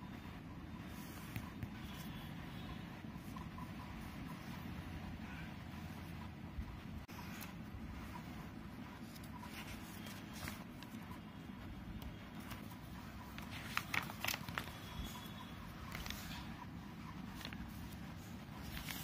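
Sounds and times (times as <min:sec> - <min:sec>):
low background hum: 0:00.0 - 0:19.0
paper pages rustling: 0:09.0 - 0:11.2, 0:12.3 - 0:19.0.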